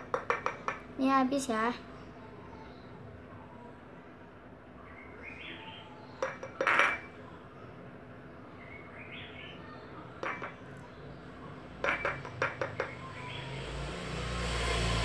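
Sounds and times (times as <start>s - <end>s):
plastic bottle clinking on glass: 6.2s - 7.1s, 10.2s - 10.6s, 11.8s - 13.0s.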